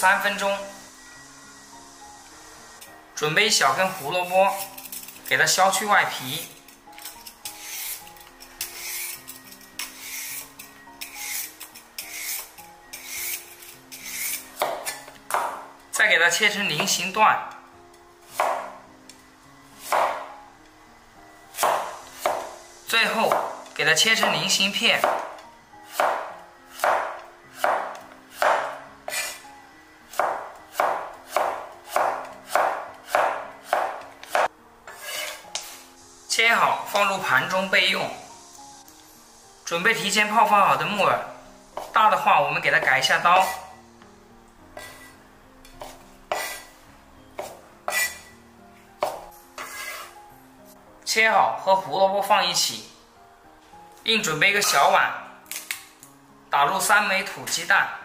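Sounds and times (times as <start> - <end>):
soft background music: 0.0 - 58.0
peeler scraping carrot: 7.1 - 15.0, 29.1 - 29.4, 34.9 - 35.7, 43.3 - 43.7, 44.8 - 45.2, 47.9 - 48.3, 49.6 - 50.2
knife chopping on wooden board: 14.0 - 15.6, 18.3 - 18.7, 19.8 - 20.3, 21.6 - 22.5, 23.3 - 23.5, 25.0 - 25.3, 25.9 - 29.4, 30.1 - 35.7, 44.8 - 45.1, 45.8 - 46.7, 47.4 - 48.2, 49.0 - 50.1.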